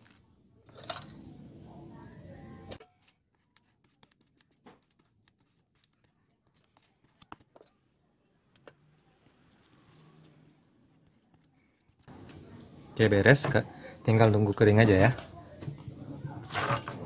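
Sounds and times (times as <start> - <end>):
faint background murmur: 0.0 - 17.0
glue brush clicks and taps: 3.3 - 7.7.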